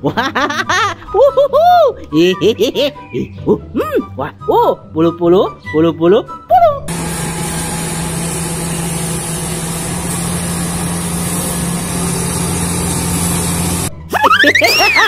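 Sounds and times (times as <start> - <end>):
bulldozer diesel engine running: 6.9 - 14.0.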